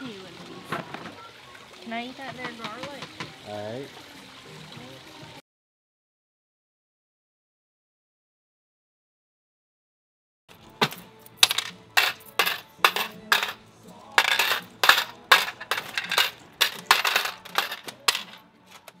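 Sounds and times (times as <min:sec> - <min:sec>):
metal coins clinking: 0:10.5 - 0:13.6, 0:14.2 - 0:19.0.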